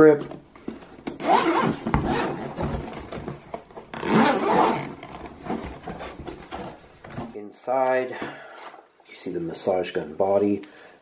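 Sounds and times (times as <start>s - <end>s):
zipper being pulled open: 1.2s - 2.4s, 4.0s - 5.0s.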